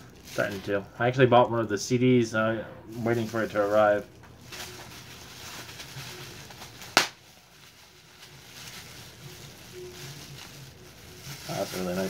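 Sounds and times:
bubble wrap crinkling: 0:00.0 - 0:01.7, 0:02.9 - 0:12.0
bubble wrap snap: 0:04.2 - 0:09.5.

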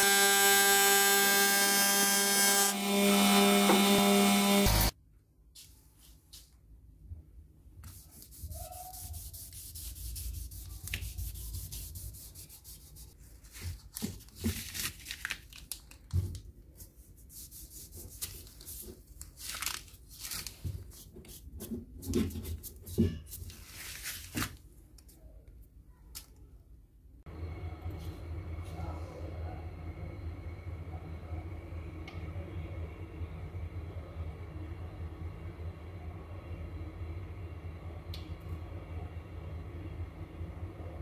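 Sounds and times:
hand rubbing wooden handle: 0:07.8 - 0:13.2.

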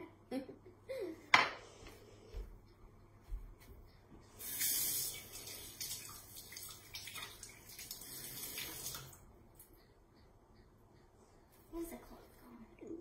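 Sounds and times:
tap water running into sink: 0:04.4 - 0:09.2.

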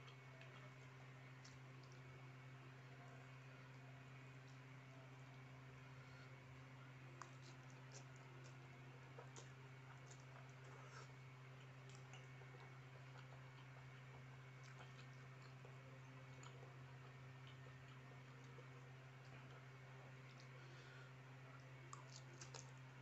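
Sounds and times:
person chewing noodles: 0:00.0 - 0:02.1, 0:07.1 - 0:21.0, 0:21.6 - 0:23.0.

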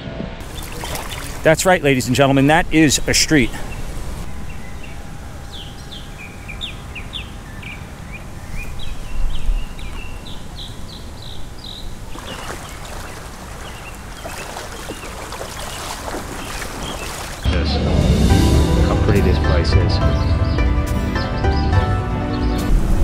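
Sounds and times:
wind rumble on microphone: 0:00.0 - 0:17.5
bird chirping: 0:00.4 - 0:17.5
water splashing: 0:00.4 - 0:17.5.

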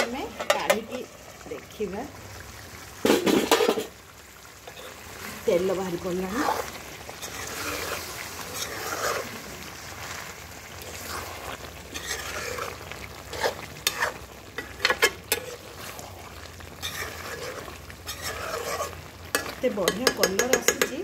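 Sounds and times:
spatula scraping metal pan: 0:00.0 - 0:01.1, 0:04.7 - 0:05.0, 0:06.2 - 0:10.2, 0:10.8 - 0:21.0
curry sizzling in oil: 0:00.0 - 0:21.0
spatula clinking against pan: 0:19.4 - 0:21.0.

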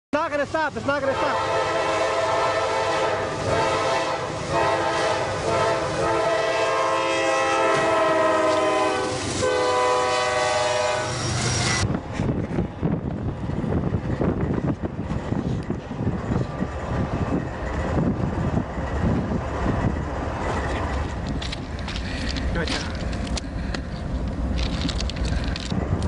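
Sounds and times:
train rumbling and knocking: 0:00.1 - 0:26.0
train air horn blaring: 0:01.0 - 0:11.8.

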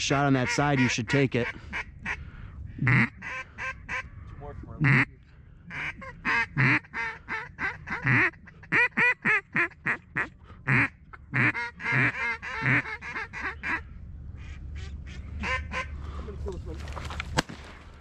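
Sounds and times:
duck quacking: 0:00.2 - 0:02.2, 0:02.8 - 0:04.1, 0:04.8 - 0:05.1, 0:05.7 - 0:16.0.

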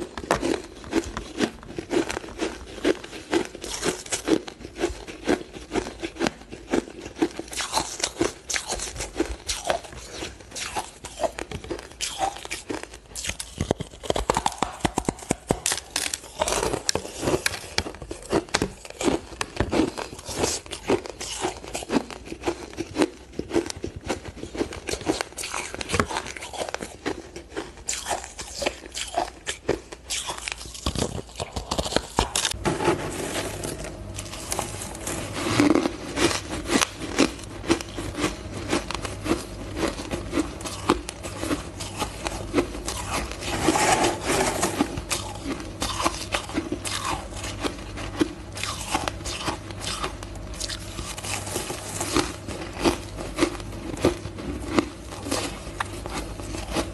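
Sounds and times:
ice being bitten and chewed: 0:00.0 - 0:56.9.

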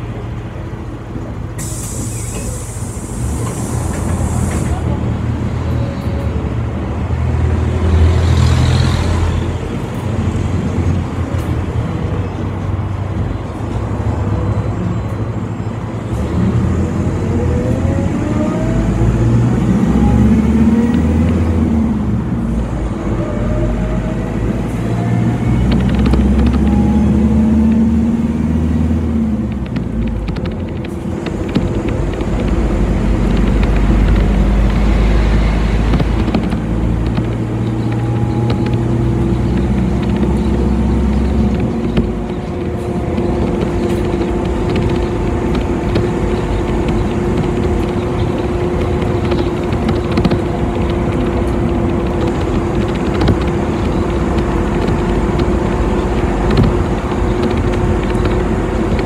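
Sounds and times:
bus engine and road rumble: 0:00.0 - 0:59.0
knocks and rattles: 0:25.5 - 0:59.0.

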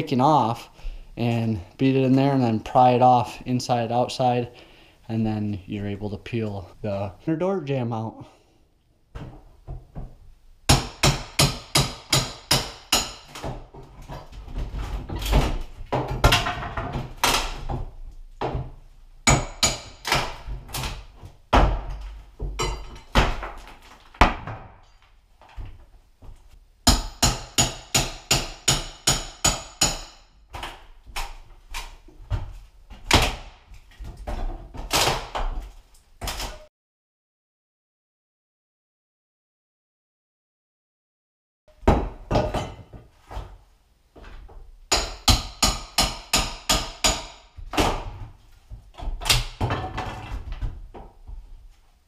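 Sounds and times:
hammer striking steel crowbar: 0:10.7 - 0:13.3, 0:26.9 - 0:30.3, 0:44.9 - 0:47.4.

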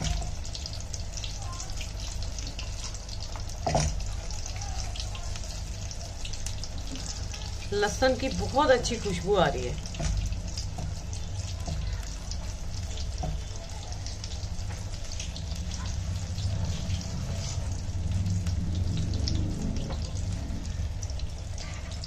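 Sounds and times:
deep-frying sizzle with pops: 0:00.0 - 0:22.0
low steady rumble: 0:12.4 - 0:22.0.

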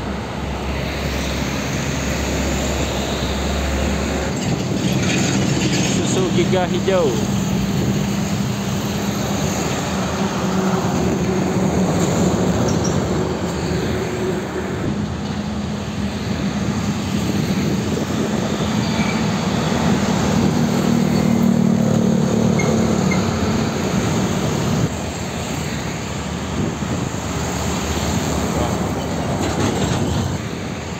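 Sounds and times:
heavy road traffic: 0:00.0 - 0:30.9
motorcycles passing: 0:00.2 - 0:30.9.

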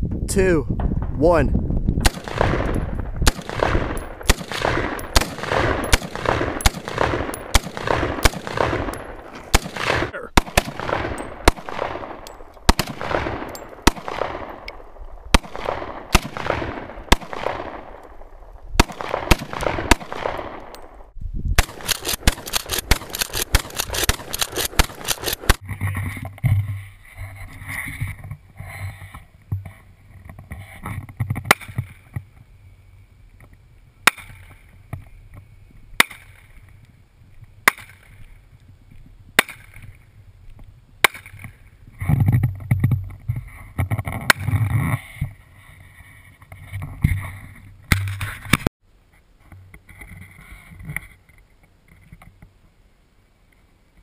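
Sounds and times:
rapid string of gunshots: 0:02.0 - 0:14.6, 0:15.3 - 0:17.9, 0:21.6 - 0:25.6
gunshots echoing: 0:02.0 - 0:25.6.

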